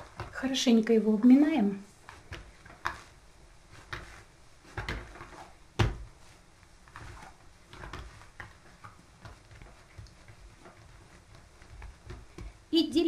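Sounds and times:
dough thumping on table: 0.0 - 0.5, 2.0 - 12.7.

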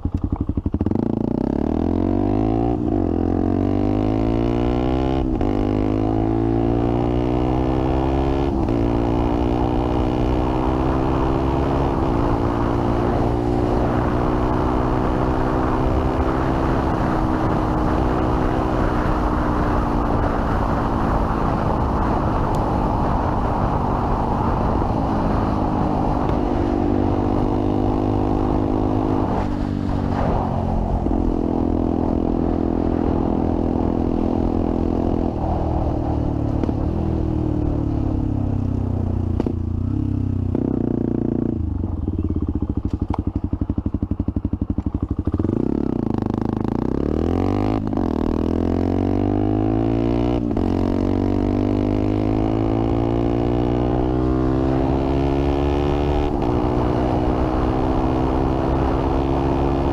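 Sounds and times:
motorcycle engine revving: 0.0 - 59.9
wind rush: 5.2 - 42.8, 43.6 - 59.9.

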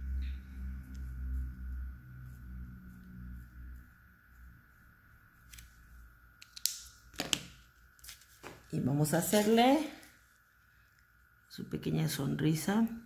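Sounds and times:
faint low hum: 0.0 - 13.0
paper napkin rustle: 7.6 - 10.6.

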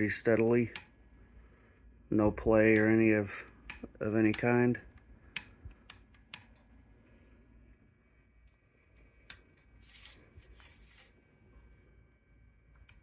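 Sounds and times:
low hum: 0.0 - 13.0
sharp click: 2.7 - 3.0.

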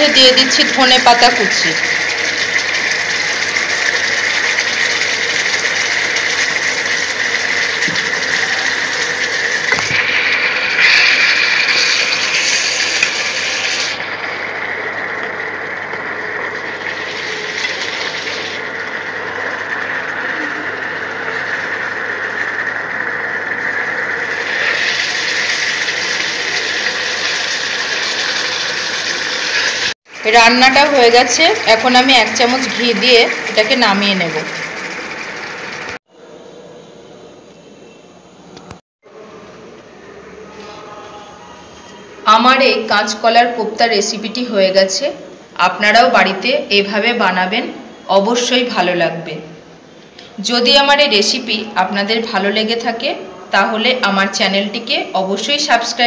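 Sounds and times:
thick gravy bubbling and sputtering: 0.3 - 23.0, 23.6 - 36.0.

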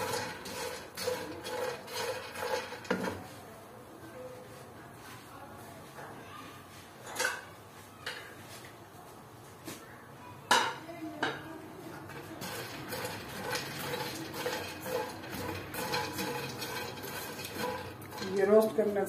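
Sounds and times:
metal spoon clanking in a pan: 0.0 - 3.2, 12.0 - 18.8
nuts rattling: 0.0 - 3.2, 12.0 - 18.8.

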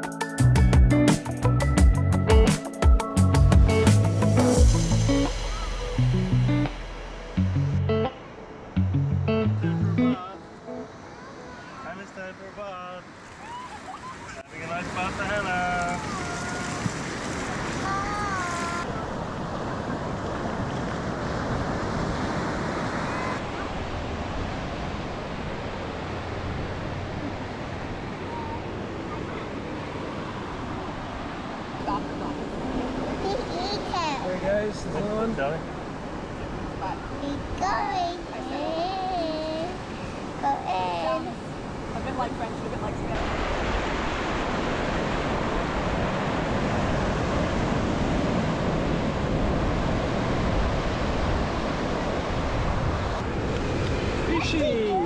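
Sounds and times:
surf washing onto beach: 10.0 - 55.0
wind buffeting microphone: 35.2 - 55.0.

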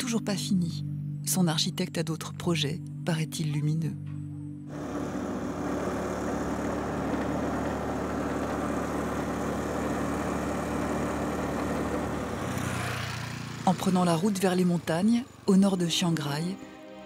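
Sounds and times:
motor scooter engine running: 4.7 - 15.5.

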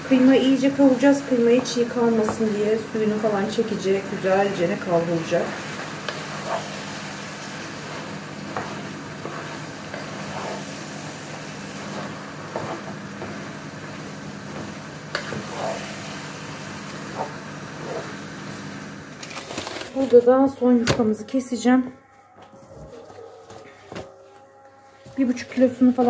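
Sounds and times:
meat sizzling in a pot: 0.0 - 19.8
spatula scraping and knocking pot: 1.5 - 2.7, 5.6 - 7.1, 7.9 - 16.0, 16.8 - 18.2.

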